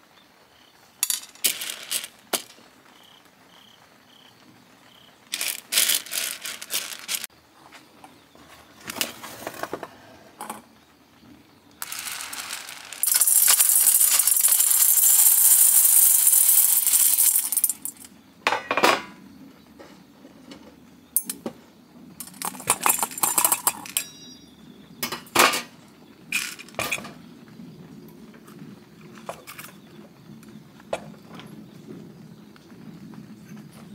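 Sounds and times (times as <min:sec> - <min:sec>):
beans clicking on metal: 0:01.0 - 0:02.6, 0:05.3 - 0:07.3, 0:11.8 - 0:18.1, 0:22.2 - 0:24.4
coffee beans pouring rattle: 0:01.0 - 0:02.6, 0:05.3 - 0:07.3, 0:11.8 - 0:18.1, 0:22.2 - 0:24.0, 0:26.3 - 0:27.0.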